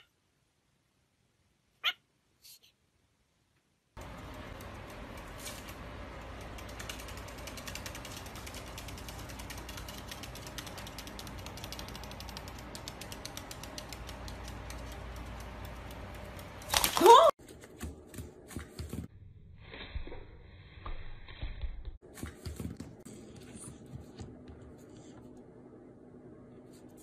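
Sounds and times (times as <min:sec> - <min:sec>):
parrot clicking and scratching: 0:04.0 - 0:19.1.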